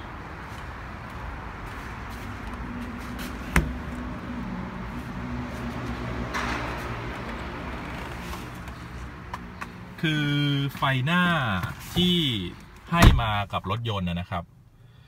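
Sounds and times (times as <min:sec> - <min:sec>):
car door shutting: 0:03.4 - 0:04.0, 0:12.9 - 0:13.4.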